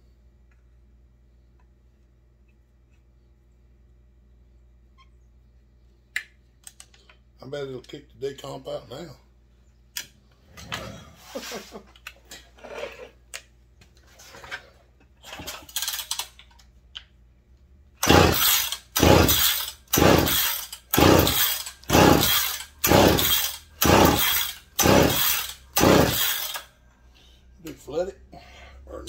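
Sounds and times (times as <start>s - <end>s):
chainsaw engine cranking rasp: 18.0s - 26.7s.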